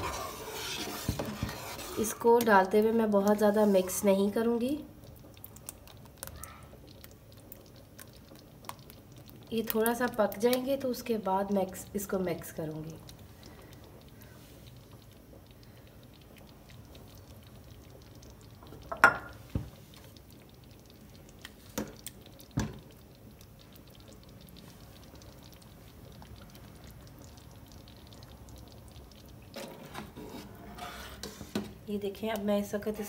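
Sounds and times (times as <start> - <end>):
stirring: 0.0 - 4.4, 13.0 - 31.8
soup bubbling: 0.0 - 33.0.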